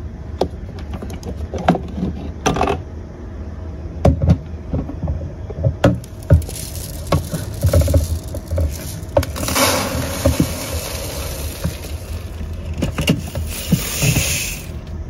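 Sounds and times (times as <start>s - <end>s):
rice grains pouring hiss: 6.0s - 14.8s.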